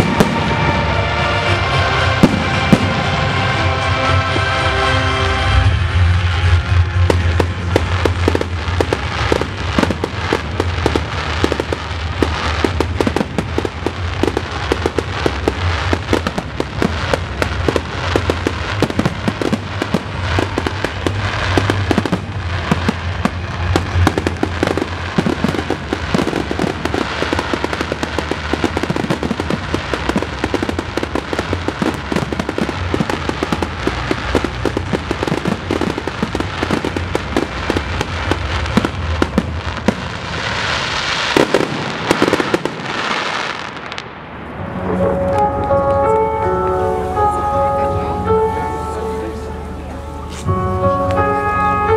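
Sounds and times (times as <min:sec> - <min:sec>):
firework shells bursting: 0:07.0 - 0:44.0.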